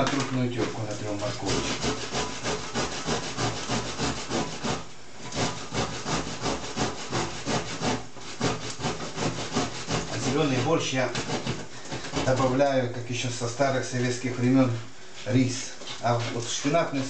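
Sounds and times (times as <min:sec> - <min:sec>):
carrot grating on metal grater: 0:00.9 - 0:12.8.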